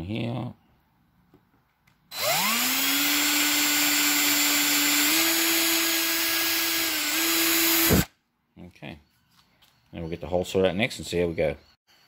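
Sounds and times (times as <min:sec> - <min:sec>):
cordless drill motor whine: 0:02.1 - 0:08.1.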